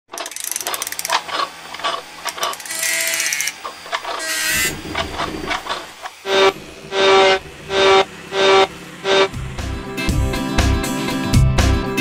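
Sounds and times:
ratchet-like clatter: 0:00.1 - 0:06.1
fast mechanical clicks: 0:00.1 - 0:06.2
whirring sweep: 0:04.5 - 0:10.3.

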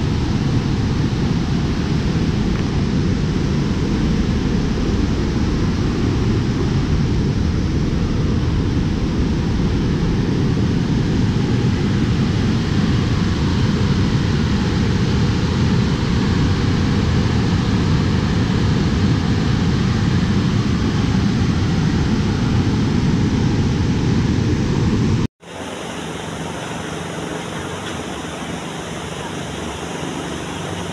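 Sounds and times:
water rushing over dam spillway: 0:25.4 - 0:30.9.

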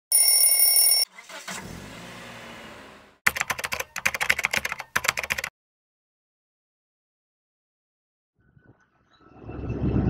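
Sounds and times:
high steady tone: 0:00.1 - 0:01.0
typewriter keys clacking: 0:03.3 - 0:05.5.

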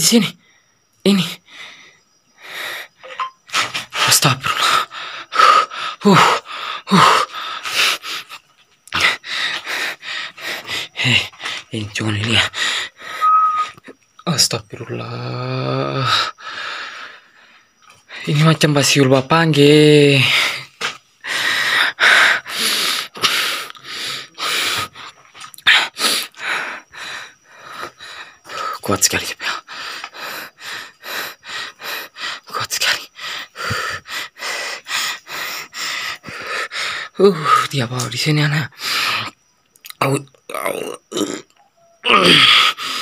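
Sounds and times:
person breathing hard: 0:01.4 - 0:11.7, 0:12.5 - 0:13.4, 0:16.1 - 0:18.3, 0:20.2 - 0:28.8, 0:29.4 - 0:37.2, 0:42.3 - 0:43.0
person heaving cries and gasps: 0:04.5 - 0:11.7, 0:42.0 - 0:43.0.

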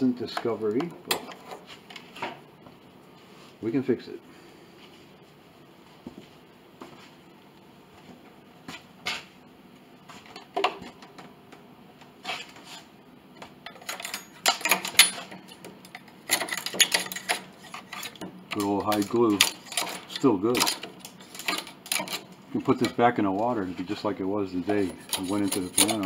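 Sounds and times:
steel blade scraping wood: 0:24.7 - 0:26.0.

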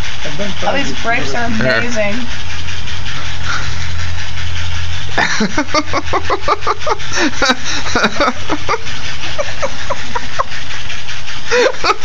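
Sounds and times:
woman laughing hard: 0:05.2 - 0:10.6, 0:11.5 - 0:12.0.

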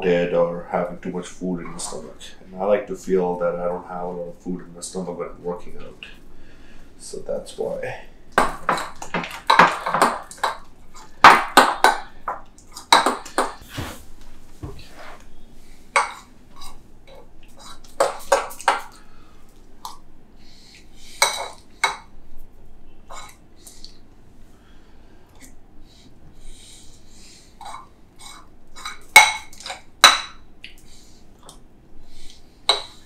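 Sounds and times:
dishes and cutlery clinking: 0:21.2 - 0:22.1, 0:23.1 - 0:23.4, 0:27.6 - 0:30.4, 0:32.7 - 0:33.0.

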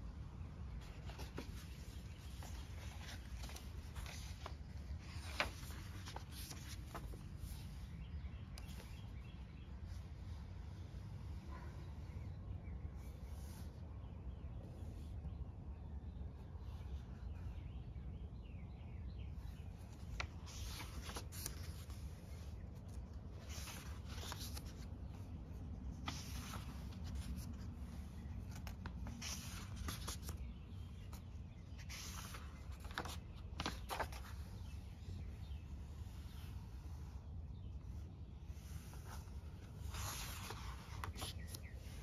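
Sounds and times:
paper pages rustling: 0:00.4 - 0:12.1, 0:19.4 - 0:42.0.

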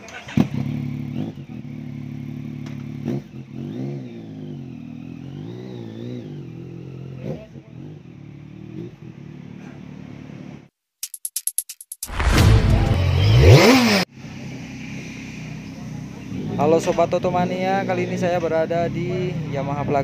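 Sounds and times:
motorcycle engine revving: 0:00.0 - 0:10.7, 0:12.1 - 0:20.0.

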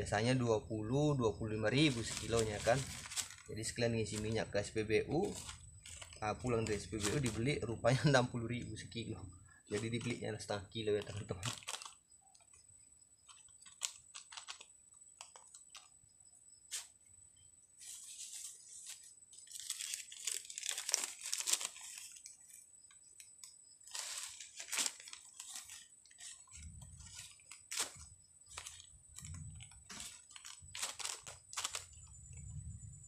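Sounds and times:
soil crunching: 0:01.6 - 0:04.5
plastic bag crinkling: 0:01.7 - 0:08.2, 0:09.7 - 0:12.5, 0:13.2 - 0:15.9, 0:17.8 - 0:22.6, 0:23.2 - 0:32.1.

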